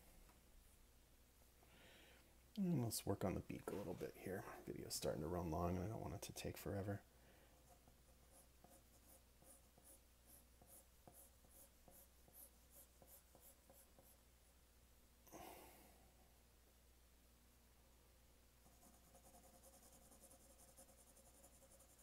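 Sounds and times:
pencil scratching on paper: 0:07.6 - 0:14.2, 0:18.6 - 0:22.0.

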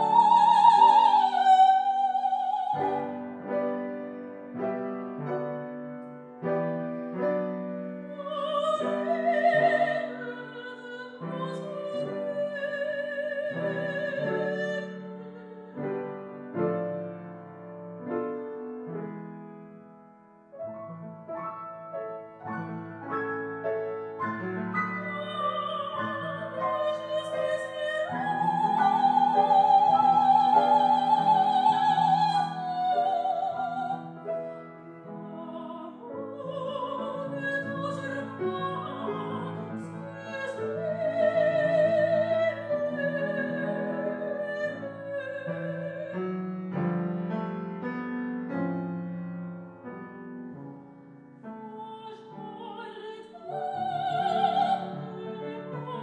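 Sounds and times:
operatic soprano singing: 0:00.0 - 0:03.4, 0:08.1 - 0:15.8, 0:24.8 - 0:46.4, 0:51.5 - 0:56.0
piano accompaniment: 0:00.0 - 0:56.0.

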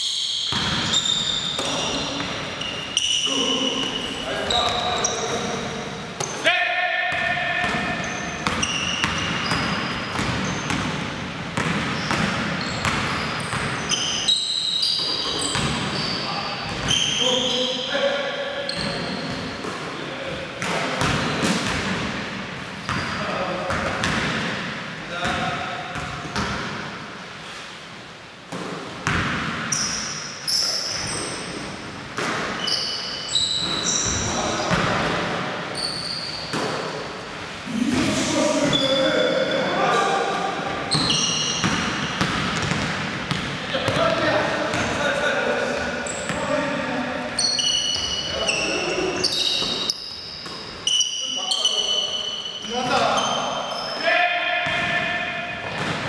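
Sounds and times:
sneaker squeaks: 0:00.0 - 0:21.8, 0:22.8 - 0:24.5, 0:29.0 - 0:35.1, 0:35.7 - 0:37.4, 0:38.2 - 0:56.0
basketball bouncing on wooden floor: 0:00.5 - 0:02.4, 0:07.1 - 0:11.0, 0:41.0 - 0:45.0
basketball bouncing on hardwood: 0:41.6 - 0:44.0.

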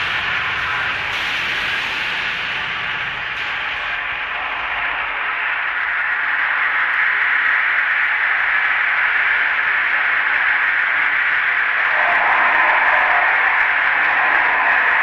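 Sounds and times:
harsh noise music hiss: 0:00.0 - 0:15.0.

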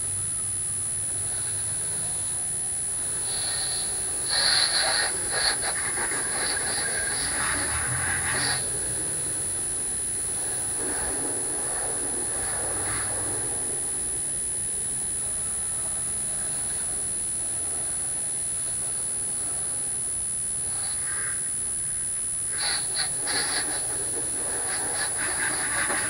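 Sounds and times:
high-pitched whine: 0:00.0 - 0:26.0
hose water spraying: 0:03.3 - 0:08.6.

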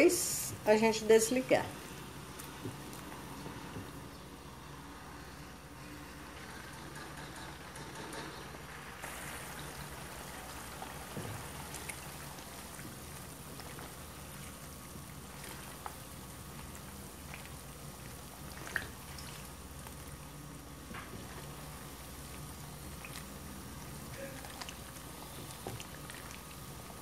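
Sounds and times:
oil frying with crackles: 0:00.0 - 0:27.0.

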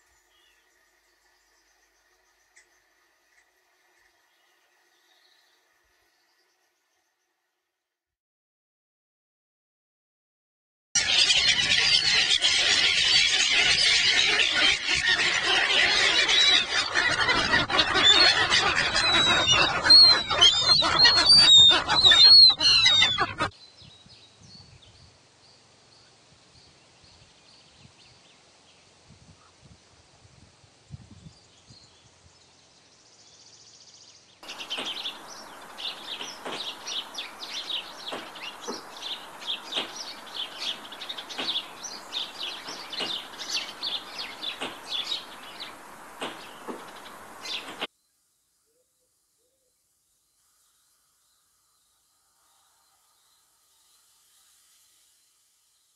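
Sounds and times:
songbird chirping: 0:00.0 - 0:07.4, 0:31.1 - 0:54.1
gulls calling: 0:11.0 - 0:23.6, 0:34.4 - 0:47.9.

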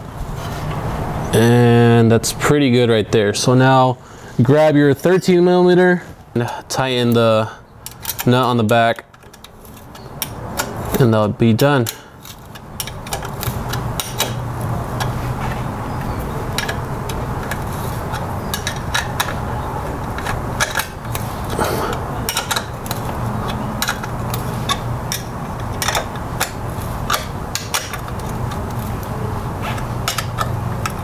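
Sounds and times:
steady low hum: 0:00.0 - 0:31.0
wrenches clicking on metal bolt: 0:07.1 - 0:11.1, 0:11.8 - 0:15.2, 0:16.5 - 0:19.4, 0:20.0 - 0:28.9, 0:29.7 - 0:31.0.

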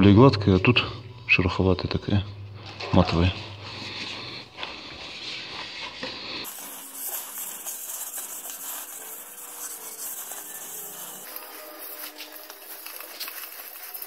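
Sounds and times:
wet sandpaper scratching: 0:03.7 - 0:14.0.

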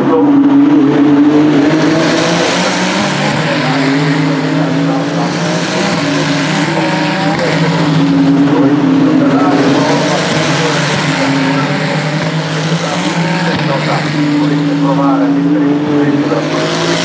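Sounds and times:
race car engines: 0:00.0 - 0:17.0.

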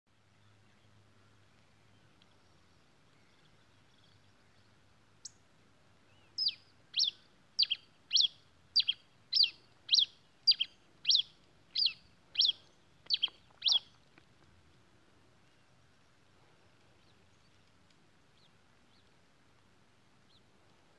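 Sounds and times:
finch singing sharp notes: 0:06.1 - 0:13.9.

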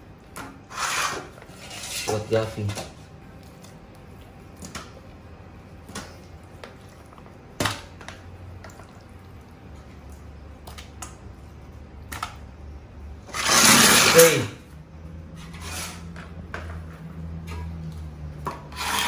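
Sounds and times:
low steady hum: 0:00.0 - 0:19.0
raw chicken wet slaps: 0:10.0 - 0:11.3, 0:12.0 - 0:12.5.

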